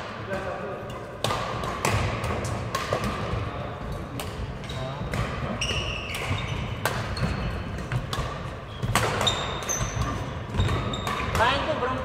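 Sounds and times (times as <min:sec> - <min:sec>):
racket hitting shuttlecock: 0:00.9 - 0:11.7
shoes squeaking on wooden floor: 0:04.7 - 0:08.0, 0:08.6 - 0:11.4.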